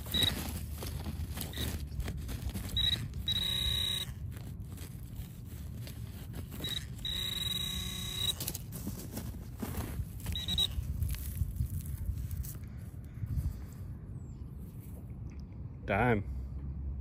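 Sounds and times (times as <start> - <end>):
metal detector beeping and buzzing: 0.0 - 2.0, 2.6 - 4.2, 6.5 - 8.6, 10.2 - 10.8
rustle of wood chips: 0.0 - 13.0.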